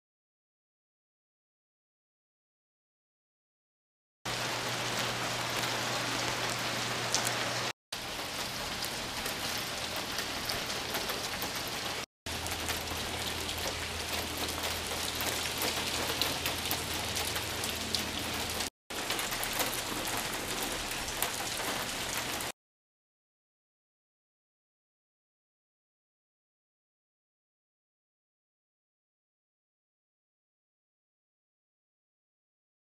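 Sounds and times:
rain pattering on concrete: 4.3 - 22.5
hail pellets ticking: 12.3 - 22.5.

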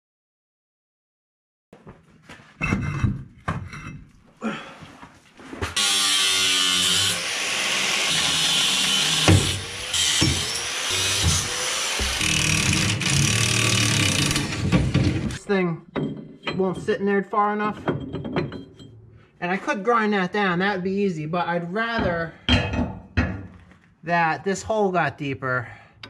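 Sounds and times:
angle grinder cutting steel: 5.8 - 15.4
impact wrench rattling: 10.2 - 19.2.

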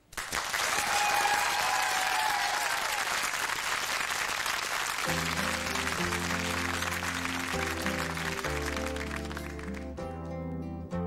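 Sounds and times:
audience applauding: 0.0 - 10.0
keyboard and acoustic guitar chords: 5.1 - 11.0.

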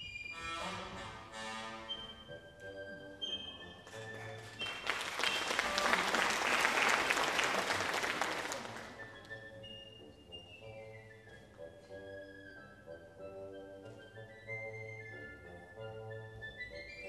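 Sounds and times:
orchestral music with strings: 0.0 - 17.0
audience applause: 4.2 - 9.2.

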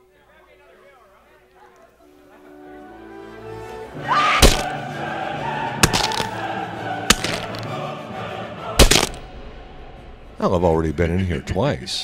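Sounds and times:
dramatic film score with choir: 2.5 - 12.0
loud hits: 4.4 - 4.8, 5.8 - 6.3, 7.1 - 7.7, 8.8 - 9.4.

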